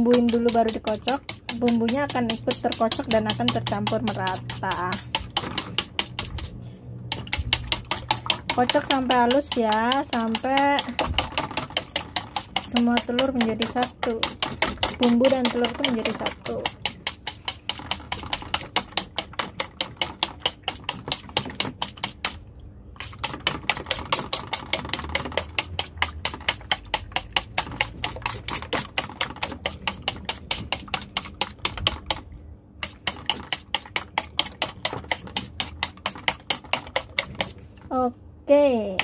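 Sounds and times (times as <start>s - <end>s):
fork beating eggs on metal plate: 0.0s - 22.4s, 23.0s - 37.7s.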